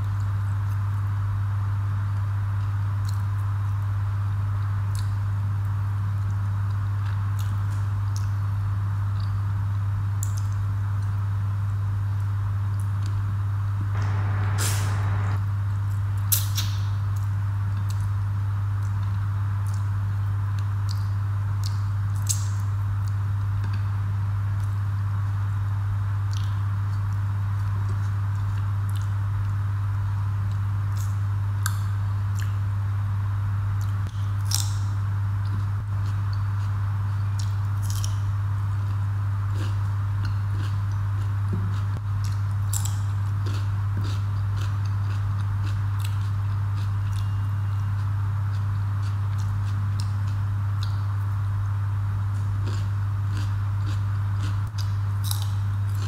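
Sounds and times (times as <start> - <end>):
loud steady low hum: 13.8 - 15.8
chewing: 39.5 - 47.4, 52.6 - 56.0.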